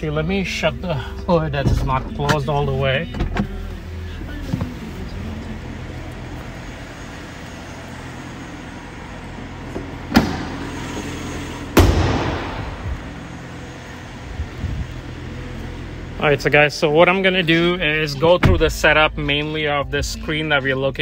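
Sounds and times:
car hood banging shut: 10.1 - 10.6, 11.8 - 12.8.

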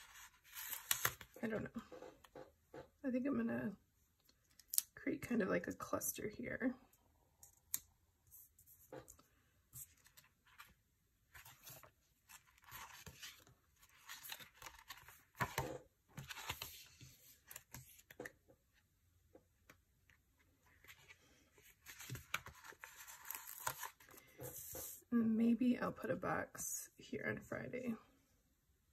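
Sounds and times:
paper rustling and scraping: 0.0 - 1.4, 11.4 - 18.2, 20.7 - 25.0.

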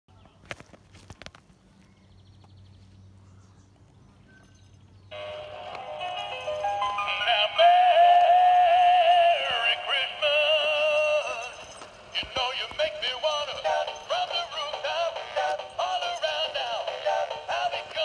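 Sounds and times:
toy song music: 5.1 - 18.0
synthetic singing voice: 7.0 - 11.4, 12.2 - 18.0.

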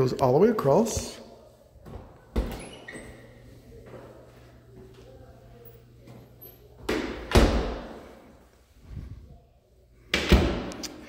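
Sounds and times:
closet door thumping shut: 7.0 - 7.9.

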